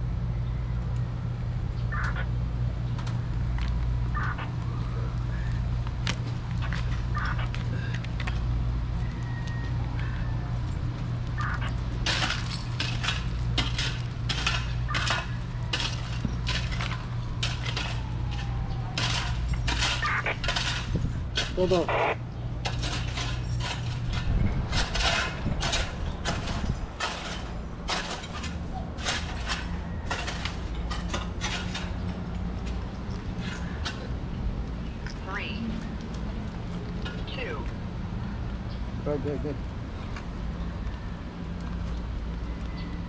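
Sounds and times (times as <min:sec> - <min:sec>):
steady low hum: 0:00.0 - 0:40.9
hand tool scraping stony soil: 0:22.6 - 0:32.0.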